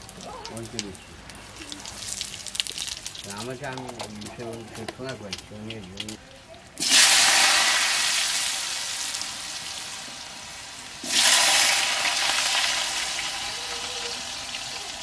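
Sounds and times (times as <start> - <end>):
potatoes sizzling in hot oil: 1.9 - 4.0, 6.8 - 15.0.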